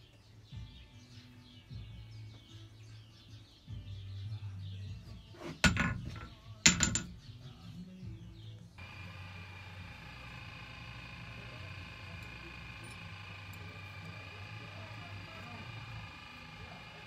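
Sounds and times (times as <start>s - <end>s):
hammer striking horseshoe on anvil: 5.6s - 7.2s
low hum: 8.8s - 17.0s.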